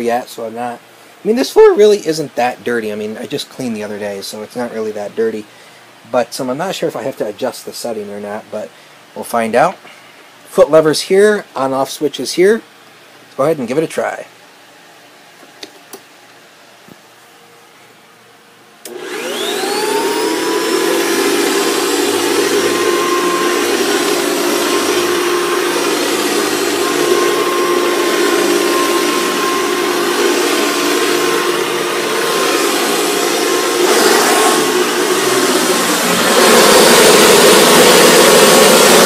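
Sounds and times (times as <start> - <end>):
vacuum cleaner running: 18.8 - 39.0.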